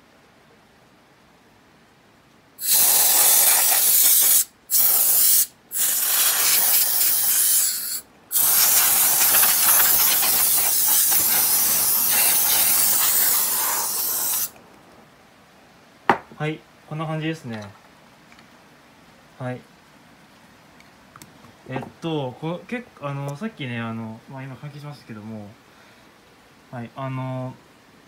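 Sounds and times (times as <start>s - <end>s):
canned air duster hiss: 2.6s - 14.6s.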